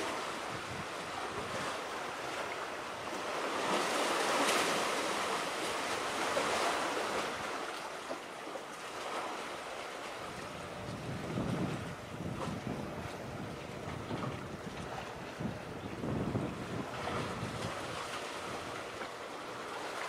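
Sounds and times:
wind on microphone: 0.0s - 1.8s, 10.2s - 19.1s
sea water washing ashore: 0.0s - 20.0s.

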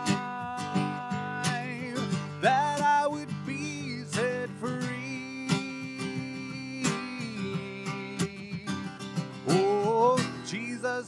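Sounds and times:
acoustic guitar strumming: 0.0s - 11.0s
man singing: 0.0s - 11.0s.

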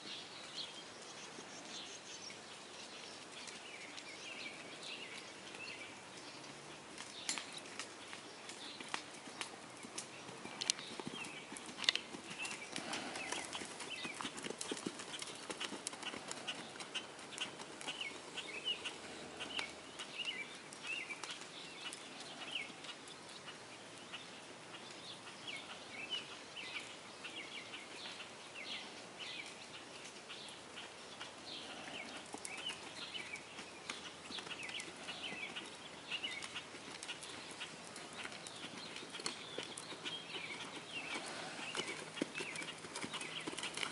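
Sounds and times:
hoofbeats on soft sand: 10.1s - 19.8s.

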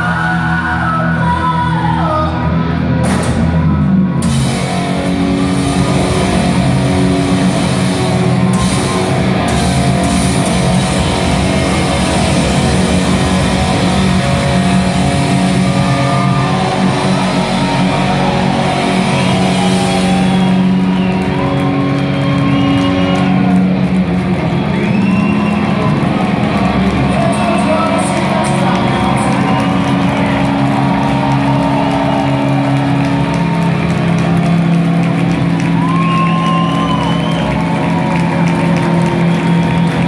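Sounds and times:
loud live rock band: 0.0s - 40.0s
drums and cymbals: 2.9s - 40.0s
electric guitars ringing notes: 4.2s - 40.0s.

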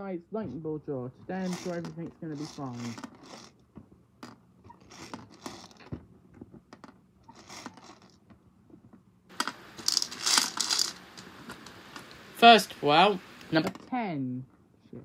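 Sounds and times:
plastic toy clicks and scraping: 1.3s - 5.9s, 6.8s - 8.3s, 9.3s - 12.2s.

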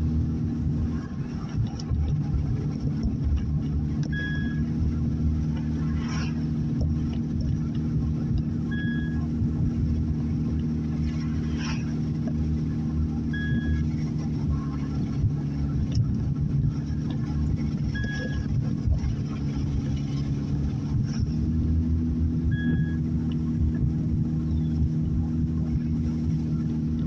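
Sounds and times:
car engine and road noise: 0.0s - 27.0s.

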